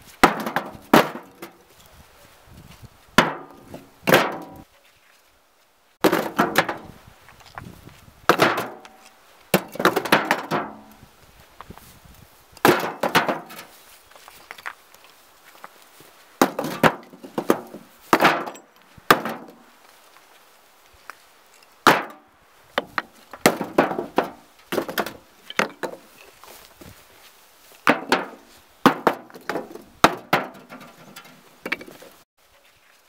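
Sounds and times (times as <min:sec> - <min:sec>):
bricks clattering into wheelbarrow: 0:00.2 - 0:01.6, 0:03.2 - 0:04.6, 0:06.0 - 0:06.9, 0:08.3 - 0:10.9, 0:12.6 - 0:13.7, 0:16.4 - 0:19.6, 0:22.8 - 0:26.4, 0:27.9 - 0:32.2.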